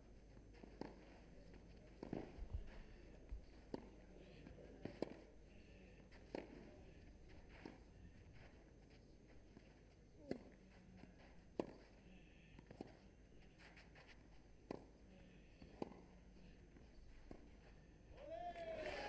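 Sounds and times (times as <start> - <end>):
tennis ball hit by racquets: 15.6 - 16.1
hushed crowd: 18.2 - 19.0.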